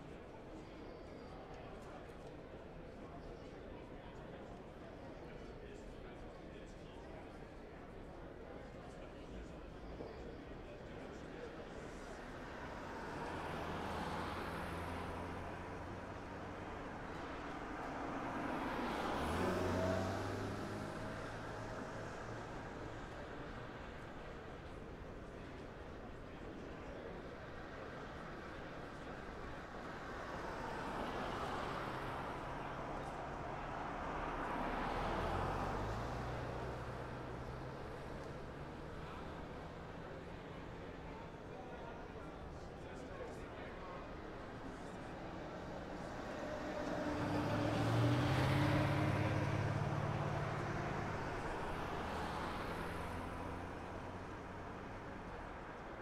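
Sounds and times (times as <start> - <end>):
city street noise: 0.0 - 56.0
cars passing: 10.9 - 56.0
motor vehicle driving past: 45.4 - 54.7.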